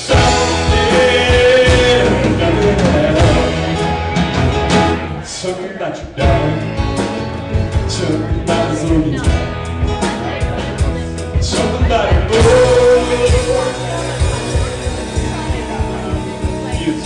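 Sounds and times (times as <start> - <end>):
live country-rock band playing: 0.0 - 17.0.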